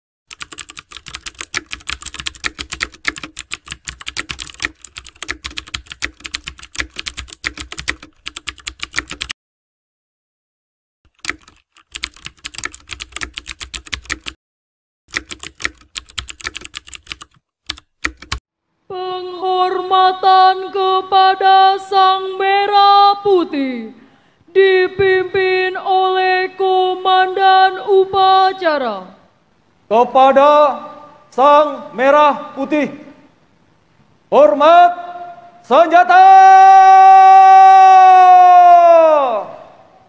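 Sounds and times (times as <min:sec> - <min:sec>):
rapid keyboard typing: 0:00.3 - 0:09.4, 0:11.1 - 0:14.4, 0:15.1 - 0:18.4.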